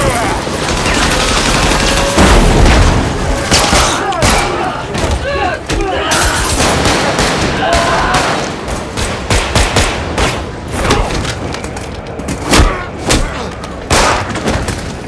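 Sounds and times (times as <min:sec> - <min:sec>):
gunshots: 0:00.0 - 0:11.4, 0:12.4 - 0:15.0
shouts and grunts: 0:03.7 - 0:06.6, 0:07.5 - 0:08.4.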